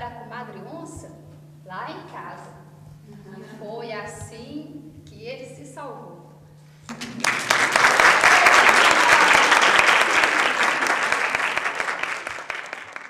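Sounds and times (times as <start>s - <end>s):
audience clapping: 6.9s - 13.0s.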